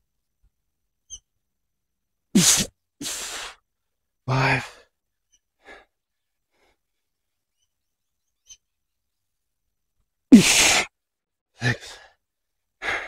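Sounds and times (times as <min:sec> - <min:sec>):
man breathing hard: 0:03.0 - 0:03.6, 0:11.7 - 0:12.2, 0:12.8 - 0:13.0.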